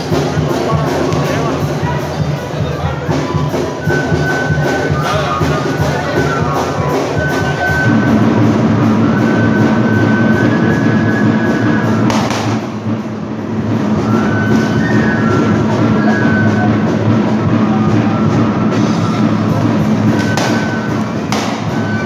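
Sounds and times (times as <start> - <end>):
steady drum beat: 0.0 - 22.0
thin high melody: 3.1 - 12.2, 13.5 - 22.0.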